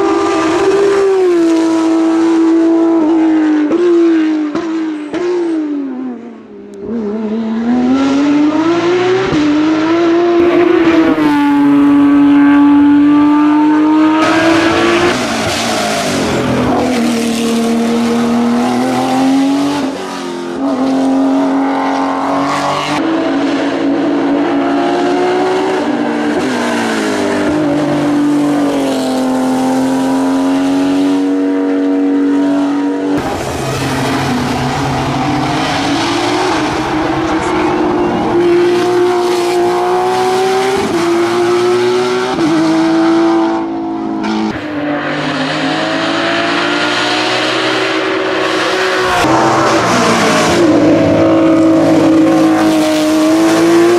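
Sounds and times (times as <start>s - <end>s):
race car engine accelerating: 6.7s - 53.9s.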